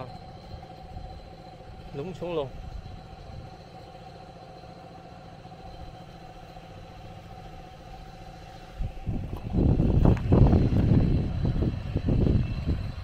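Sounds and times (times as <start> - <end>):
small engine idling: 0.0 - 13.0
loud low rumble: 8.6 - 13.0.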